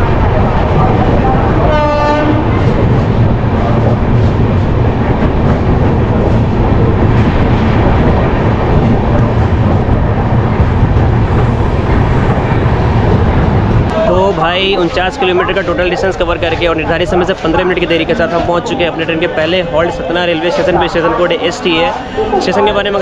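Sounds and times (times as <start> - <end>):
train wheels rumbling: 0.0 - 23.0
train horn blast: 1.6 - 2.6.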